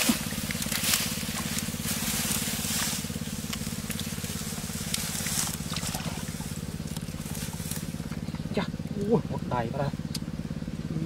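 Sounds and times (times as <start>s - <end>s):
water splashing: 0.0s - 8.2s
small engine running: 0.0s - 11.0s.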